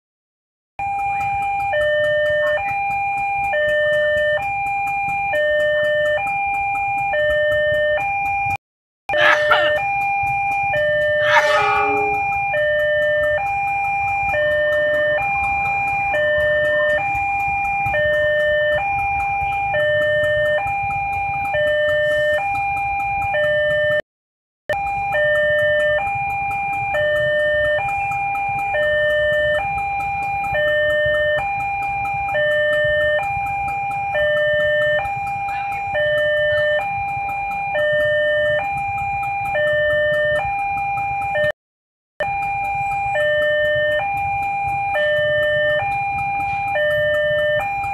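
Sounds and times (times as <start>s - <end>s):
level crossing two-tone alarm: 0.8s - 24.0s, 24.7s - 41.6s, 42.2s - 47.9s
low rumble of passing trains: 9.1s - 24.0s, 42.4s - 47.9s
brief sharp high sound: 11.2s - 12.3s.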